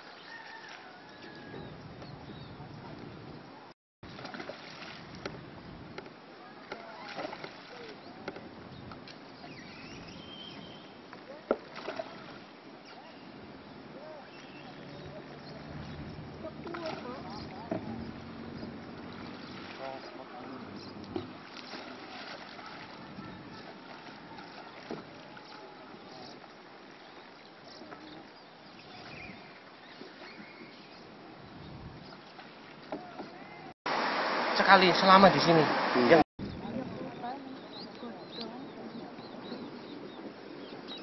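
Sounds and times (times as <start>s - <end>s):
soft water noise: 0.0s - 41.0s.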